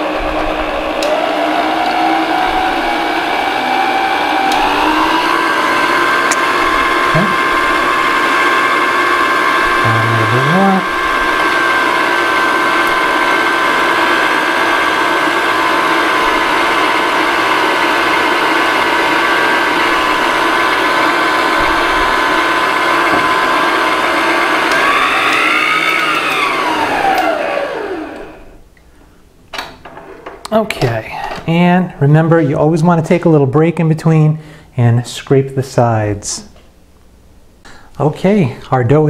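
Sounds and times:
stand mixer motor whine: 0:00.0 - 0:28.6.

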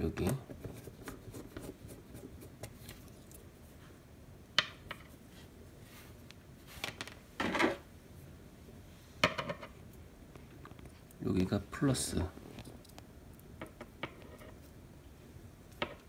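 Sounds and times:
scrape-rustle: 0:05.3 - 0:07.0
handling noises on desk: 0:06.0 - 0:07.8.

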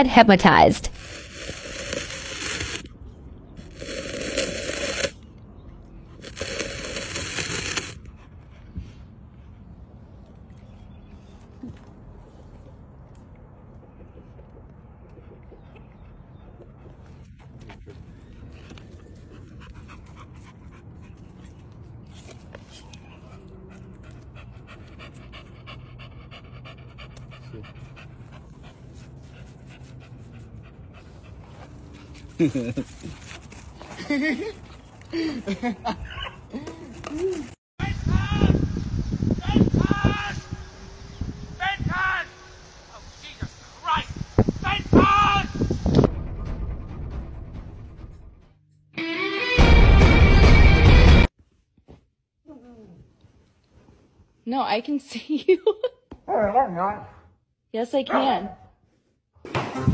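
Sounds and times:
wooden stick scraping gravelly dirt: 0:00.9 - 0:03.0, 0:03.6 - 0:05.4, 0:06.2 - 0:08.1
dog panting: 0:13.7 - 0:33.2.

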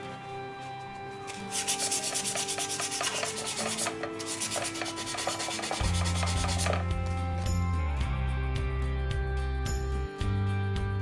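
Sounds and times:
hand tool scraping rusty metal: 0:01.3 - 0:06.9.

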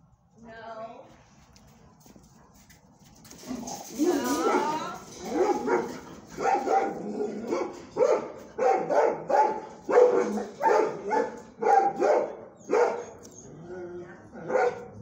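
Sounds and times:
dog barking: 0:04.4 - 0:13.2, 0:14.4 - 0:15.0.

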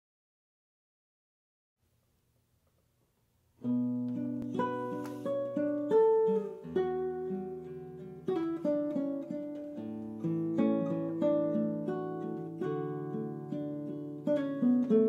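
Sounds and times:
classical guitar fingerstyle: 0:03.6 - 0:15.0.

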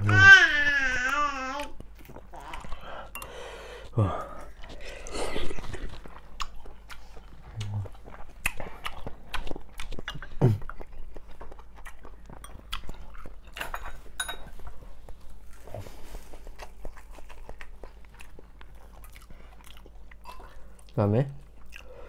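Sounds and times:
man chewing food: 0:00.0 - 0:22.0
low heavy mouth sound: 0:07.5 - 0:08.0, 0:10.1 - 0:10.7.

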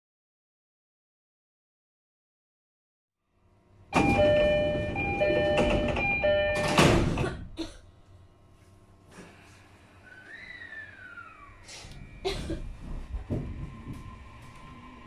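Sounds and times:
train and platform noise: 0:03.7 - 0:08.2, 0:11.0 - 0:15.0
train door-closing chime: 0:04.0 - 0:07.1
sliding doors shutting thud: 0:04.0 - 0:07.3.

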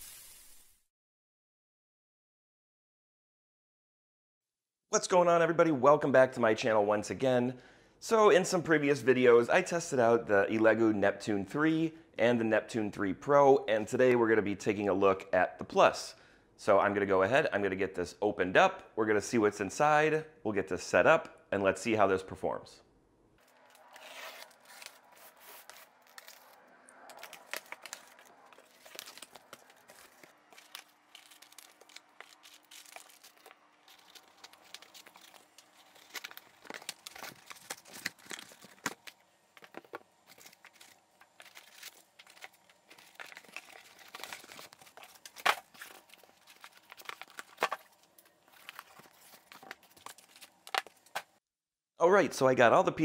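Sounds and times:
cardboard and foam rustling: 0:23.4 - 0:51.4
packing tape tearing: 0:23.6 - 0:51.3.

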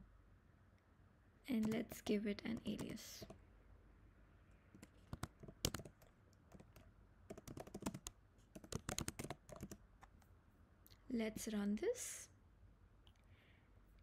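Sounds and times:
computer keyboard typing: 0:01.5 - 0:03.4, 0:04.7 - 0:10.1.

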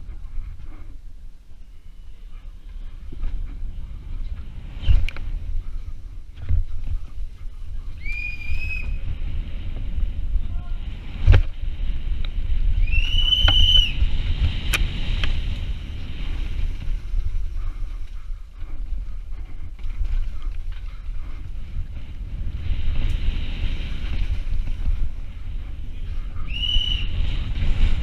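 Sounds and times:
wind buffeting microphone: 0:00.0 - 0:28.0
bike rattling over rough ground: 0:02.7 - 0:28.0
high whistles: 0:08.0 - 0:09.0, 0:12.8 - 0:14.0, 0:26.4 - 0:27.2.

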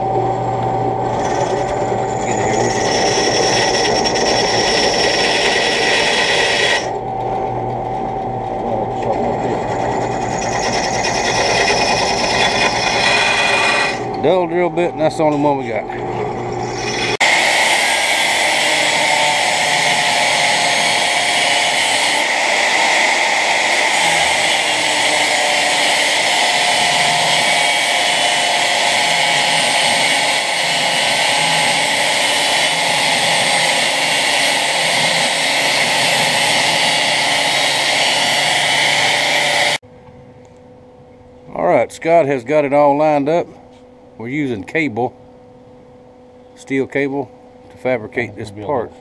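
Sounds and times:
angle grinder grinding steel: 0:01.1 - 0:07.0, 0:08.8 - 0:39.8.

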